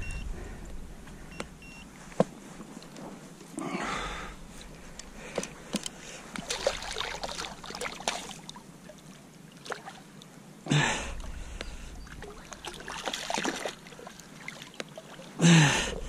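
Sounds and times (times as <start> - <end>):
fish thrashing and splashing water: 6.4 - 10.1, 12.0 - 15.4.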